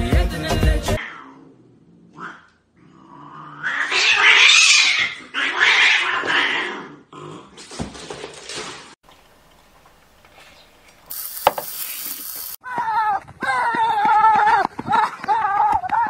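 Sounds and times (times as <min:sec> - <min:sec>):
cats yowling: 0:03.6 - 0:06.8.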